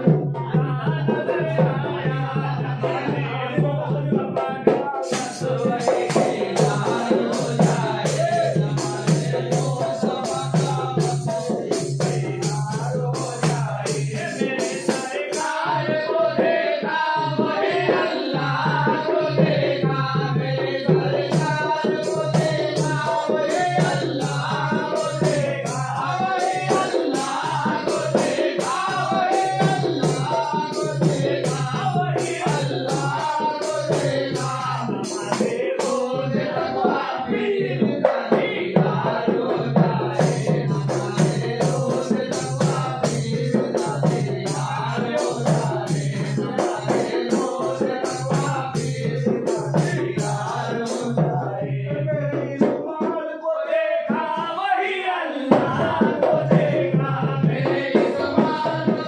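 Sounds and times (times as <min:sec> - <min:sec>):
men chanting together: 0:00.0 - 0:59.0
steady sharp beat: 0:03.8 - 0:16.0, 0:17.4 - 0:51.5.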